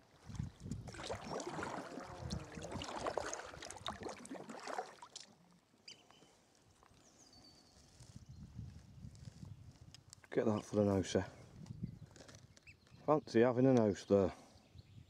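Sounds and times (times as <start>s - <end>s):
paddle splashing water: 0.0s - 5.5s
water lapping: 0.0s - 5.5s.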